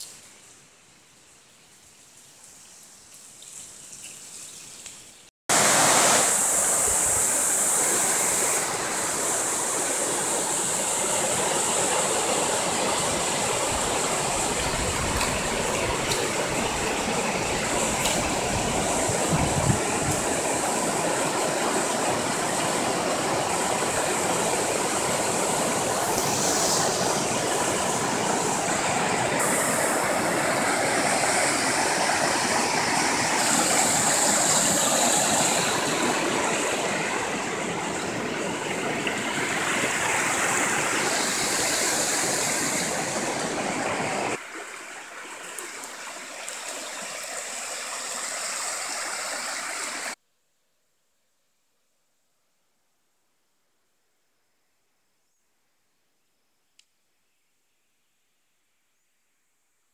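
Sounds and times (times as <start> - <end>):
water rushing over rocks: 5.5 - 50.2.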